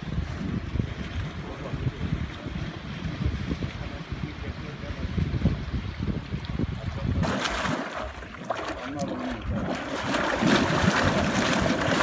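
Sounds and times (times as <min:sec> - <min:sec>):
wind rumble on microphone: 0:00.0 - 0:12.0
water jet splashing into pool: 0:07.2 - 0:12.0.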